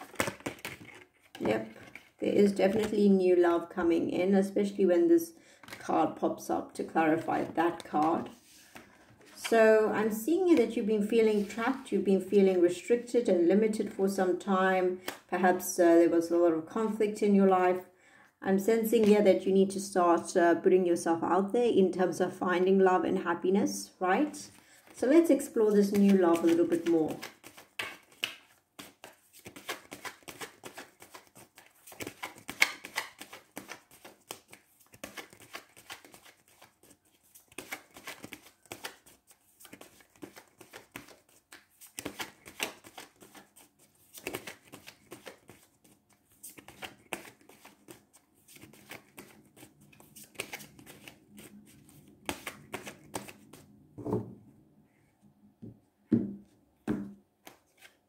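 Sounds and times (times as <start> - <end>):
cards being shuffled: 0.0 - 2.9, 25.7 - 53.7, 57.4 - 58.0.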